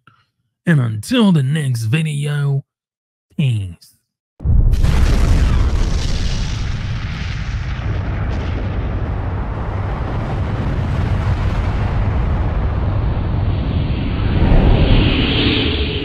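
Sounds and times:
explosion rumble: 4.4s - 15.4s.

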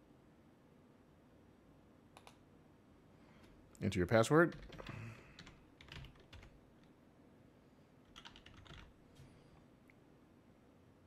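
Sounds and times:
computer keyboard typing: 4.5s - 6.6s, 8.0s - 9.0s.

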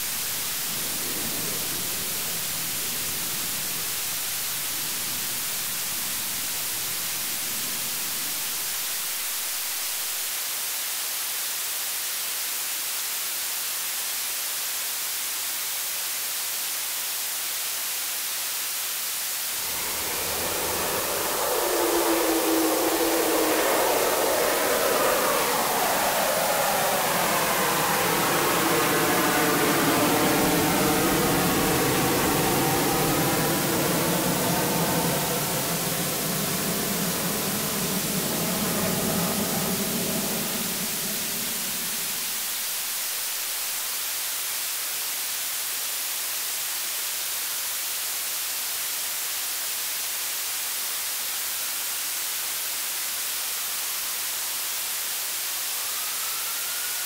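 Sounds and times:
faint gliding tone: 19.5s - 42.9s, 55.6s - 57.0s
low droning chord: 19.6s - 42.6s.

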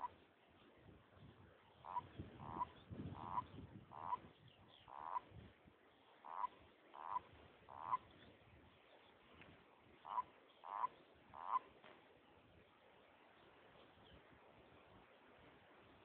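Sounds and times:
frog croaking: 1.8s - 5.3s, 6.2s - 8.1s, 10.0s - 11.7s.

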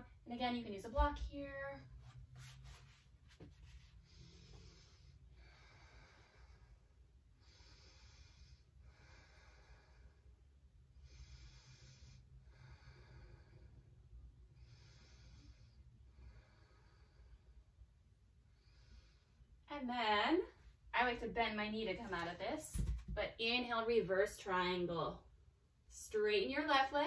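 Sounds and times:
woman breathing softly: 3.7s - 19.6s.

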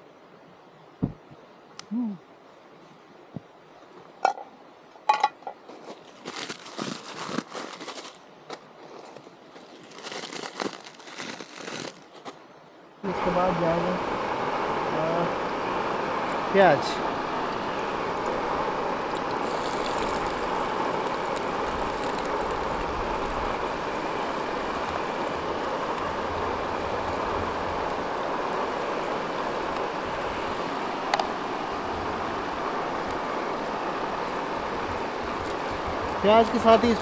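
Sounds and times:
strong wind: 0.0s - 1.6s, 13.0s - 37.0s
gas stove hissing: 13.1s - 37.0s.

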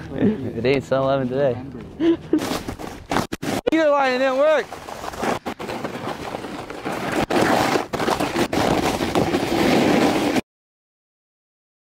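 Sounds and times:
snowboard scraping over hard snow: 2.4s - 10.4s.

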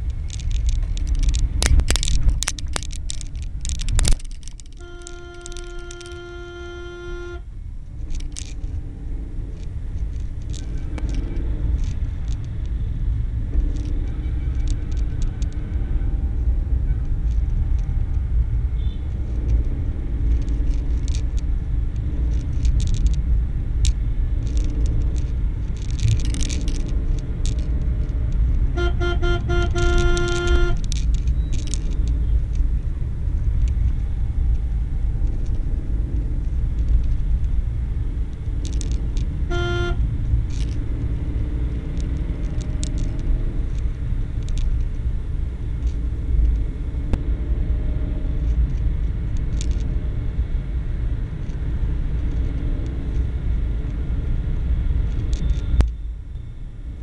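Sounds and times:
car engine and road noise: 0.0s - 57.0s
vehicle horn honking: 4.7s - 7.5s, 18.8s - 19.1s, 28.7s - 30.8s, 39.4s - 40.0s.

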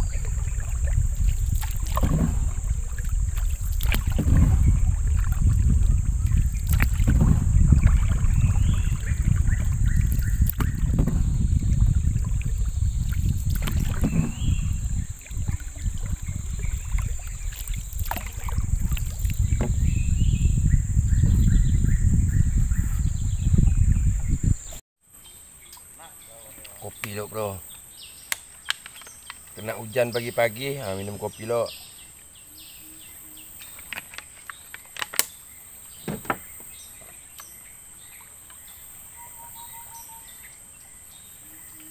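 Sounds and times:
wind and rushing water rumble: 0.0s - 24.8s, 25.6s - 41.9s
high insect drone: 0.0s - 28.2s.

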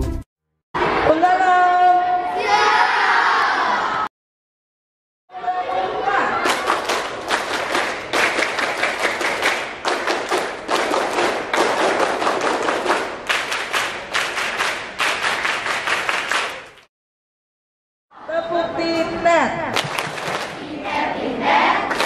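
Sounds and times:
group clapping in unison: 6.4s - 16.9s, 19.7s - 21.0s, 21.6s - 22.0s.

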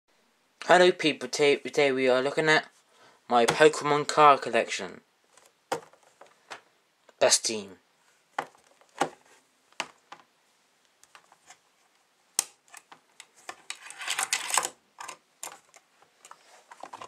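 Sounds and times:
ring binder clicks and knocks: 5.7s - 6.6s
plastic sleeve rustling: 12.6s - 17.0s.

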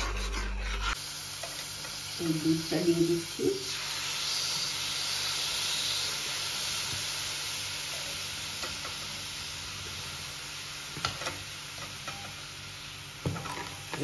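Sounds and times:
ladle stirring in pan: 0.0s - 2.1s
milk sizzling on caramel: 0.0s - 14.0s.

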